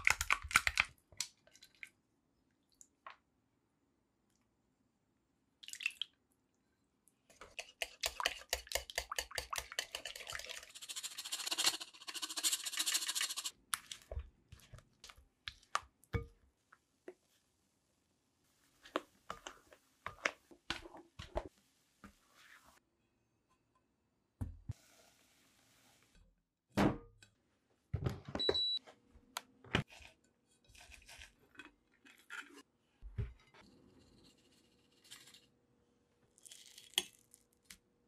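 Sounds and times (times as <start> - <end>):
whisk beating batter in glass bowl: 7.5 - 13.5.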